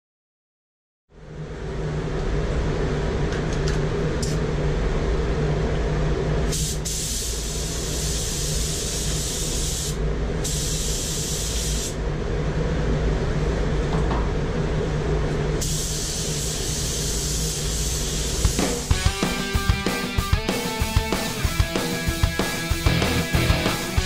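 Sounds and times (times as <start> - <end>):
paint booth air system hum: 1.1 - 24.0
paint spray gun hissing: 6.5 - 12.0, 15.6 - 24.0.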